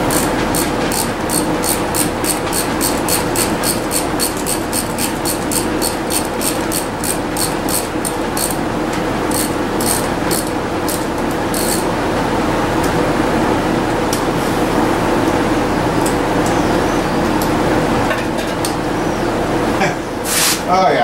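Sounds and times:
steady hum: 0.0 - 21.0
ratchet wrench clicking: 0.1 - 8.6, 9.3 - 11.8.

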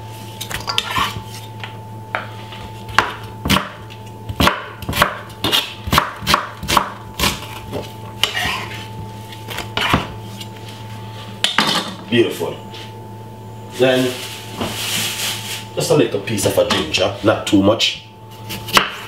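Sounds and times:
knife chopping on wooden board: 2.9 - 8.8, 9.5 - 10.2, 18.5 - 19.0.

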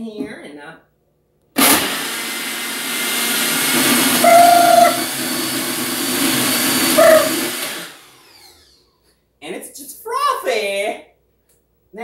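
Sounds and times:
blender motor running: 1.6 - 8.9.

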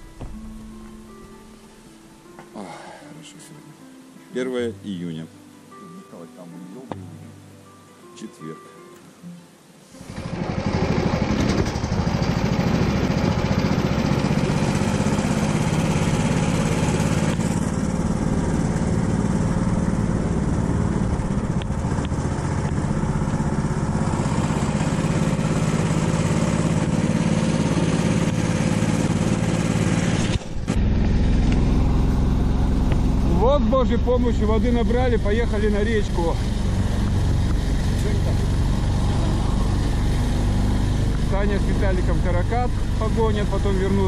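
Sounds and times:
vehicle engine running: 10.0 - 44.0.

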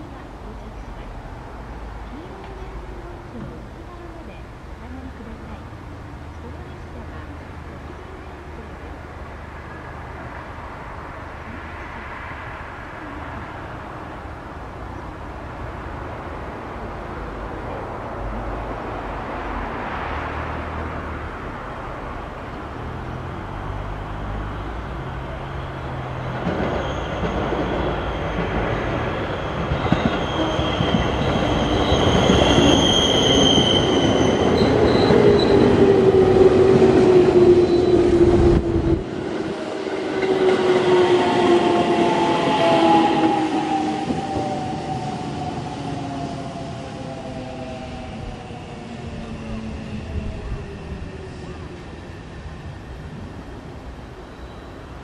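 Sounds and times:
train wheels rumbling past: 17.2 - 55.0.

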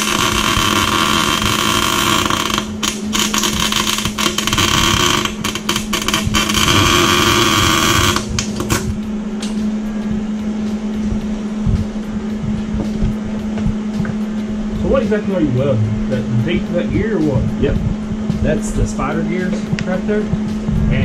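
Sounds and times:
arc welder crackling: 0.0 - 9.7.

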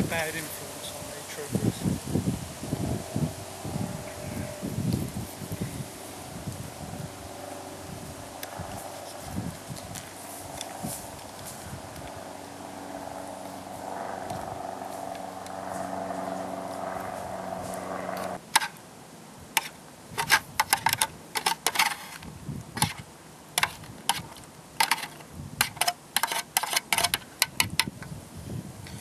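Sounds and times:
steady low hum: 0.0 - 21.4
spoon scraping a metal tin: 19.6 - 22.2, 23.6 - 27.6.

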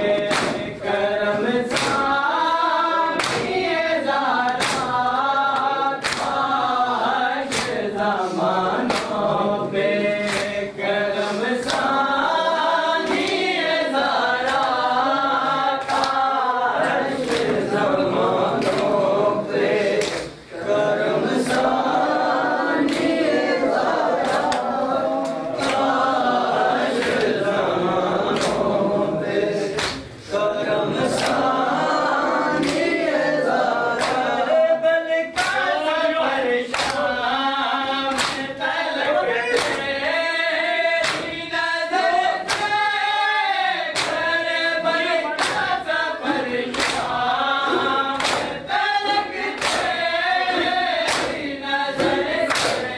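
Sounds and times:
men chanting a lament in chorus: 0.0 - 52.9
hands slapping bare chests: 0.1 - 0.7, 1.6 - 2.2, 3.1 - 3.7, 4.4 - 6.6, 7.5 - 7.9, 8.8 - 9.3, 10.2 - 10.6, 11.6 - 12.0, 14.4 - 15.0, 15.7 - 17.7, 18.6 - 19.0, 19.9 - 20.4, 24.2 - 26.1, 28.3 - 28.6, 29.7 - 30.2, 34.0 - 34.4, 36.7 - 37.1, 38.1 - 38.5, 39.6 - 40.0, 41.0 - 41.4, 43.9 - 44.3, 45.4 - 45.8, 46.7 - 52.9.

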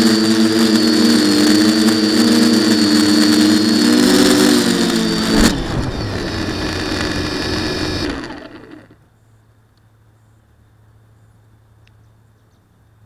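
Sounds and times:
drone motors whirring: 0.0 - 9.0
drone knocking on grass: 5.0 - 8.4.

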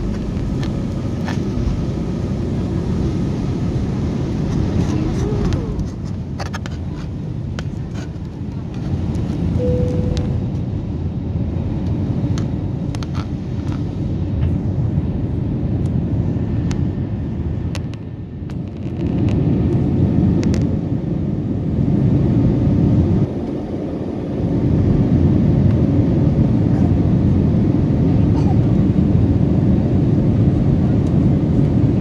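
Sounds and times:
jet engines rumbling in cabin: 0.0 - 32.0.

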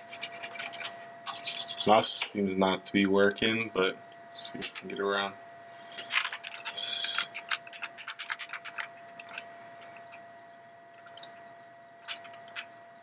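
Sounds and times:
faint steady whine: 0.0 - 13.0
keyboard keys clicking: 6.0 - 10.2.

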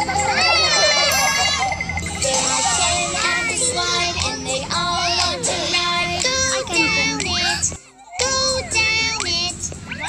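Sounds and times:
child singing children's song: 2.2 - 10.0.

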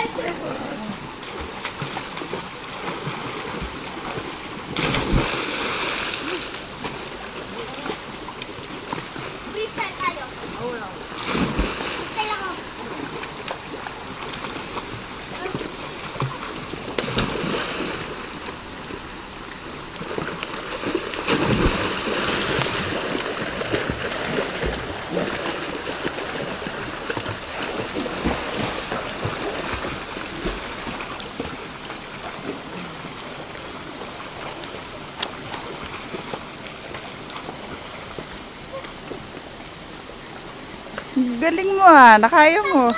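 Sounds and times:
river water rushing: 0.0 - 42.9
swimmer's strokes splashing: 1.2 - 7.1, 11.1 - 18.6, 20.0 - 32.8
loud splash: 4.7 - 6.8, 11.2 - 13.1, 16.9 - 18.2, 20.6 - 31.0.

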